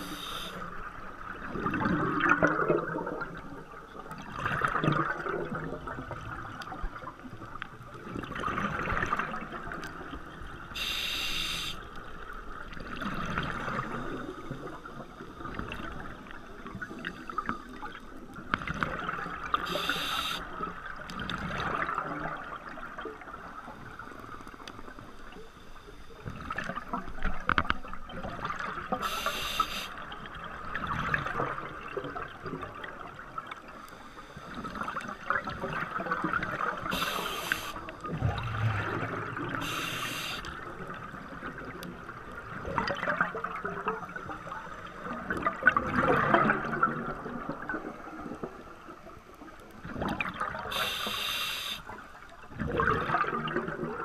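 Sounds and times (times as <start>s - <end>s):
regulator hissing on inhales: 0.0s - 0.6s, 10.8s - 11.8s, 19.7s - 20.5s, 29.0s - 30.0s, 36.9s - 37.8s, 39.6s - 40.5s, 50.7s - 51.9s
rushing bubbles: 0.0s - 7.1s, 8.0s - 10.2s, 34.6s - 48.5s, 49.8s - 51.0s, 52.5s - 54.0s.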